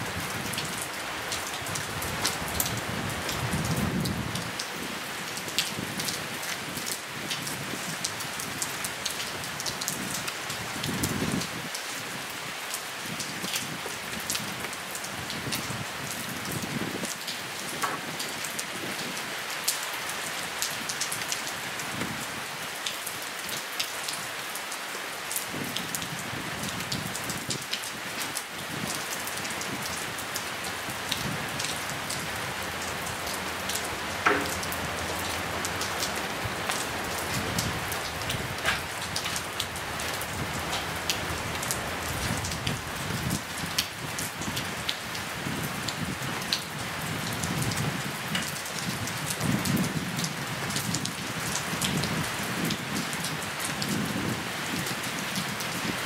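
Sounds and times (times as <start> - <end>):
raindrops pattering on surfaces: 0.0 - 56.0
steady rain hiss: 0.0 - 56.0
sharp tap: 34.2 - 34.7.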